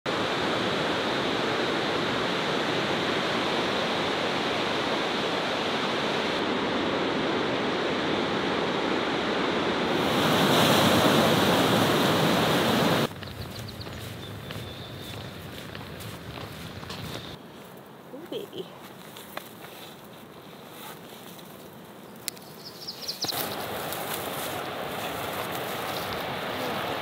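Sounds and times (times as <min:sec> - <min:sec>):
ocean surf breaking: 0:00.1 - 0:13.1, 0:23.4 - 0:27.0.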